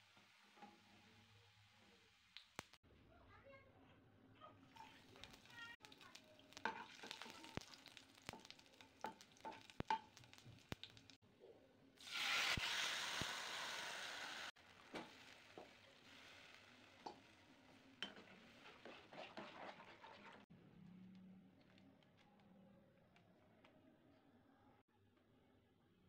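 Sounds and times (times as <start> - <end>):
spices sizzling in hot oil: 0.0 - 2.8, 4.7 - 11.2, 12.0 - 20.5
oil pops and crackles: 2.3 - 2.8, 4.8 - 11.2
liquid hissing in hot oil: 4.8 - 11.2, 12.0 - 20.4.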